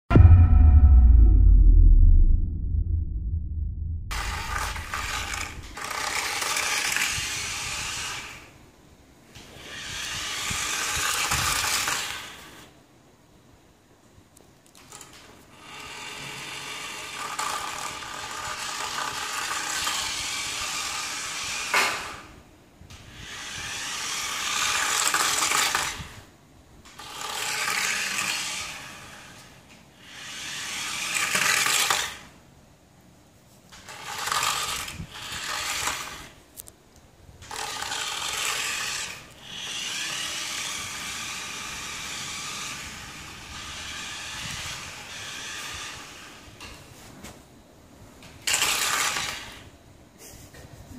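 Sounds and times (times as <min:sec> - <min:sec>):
toy car motor whirring: 0:04.9 - 0:08.5, 0:09.4 - 0:12.7, 0:14.8 - 0:22.3, 0:22.9 - 0:26.2, 0:26.9 - 0:32.3, 0:33.7 - 0:36.4, 0:37.4 - 0:46.5, 0:48.4 - 0:49.7.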